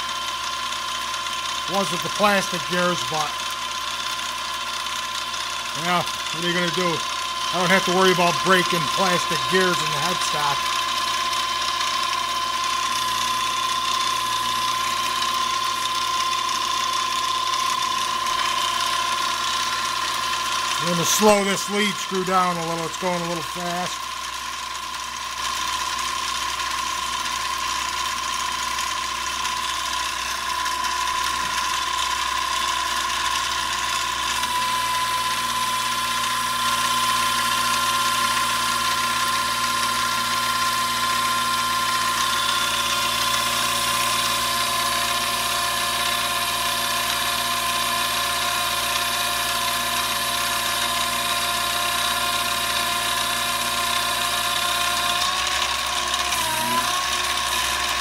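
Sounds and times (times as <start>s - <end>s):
lathe motor and gears whining: 0.0s - 58.0s
tool hissing on workpiece: 5.6s - 11.1s, 18.2s - 24.0s.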